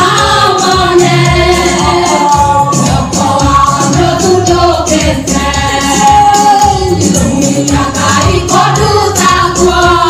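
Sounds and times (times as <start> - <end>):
backing music with bass and drums: 0.0 - 10.0
choir singing gospel: 0.0 - 10.0.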